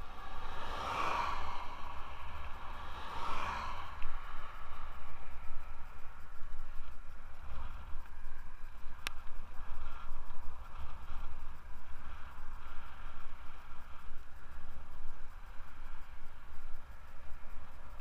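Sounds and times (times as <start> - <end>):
tyre hiss on asphalt: 0.0 - 14.3
wind buffeting microphone: 0.0 - 18.0.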